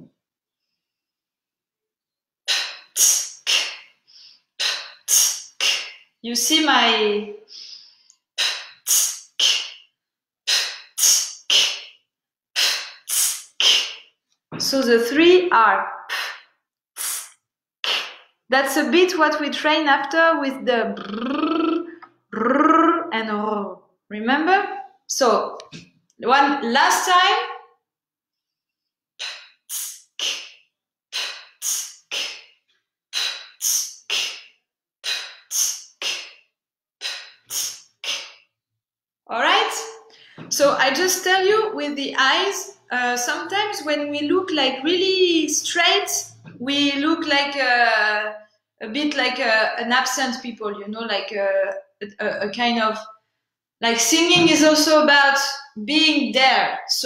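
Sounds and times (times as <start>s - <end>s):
sharp hissing breath exhales: 7.5s - 9.8s.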